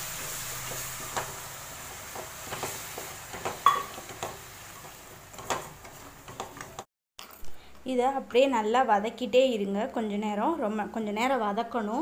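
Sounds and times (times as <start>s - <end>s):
faint sizzle: 0.0s - 6.8s.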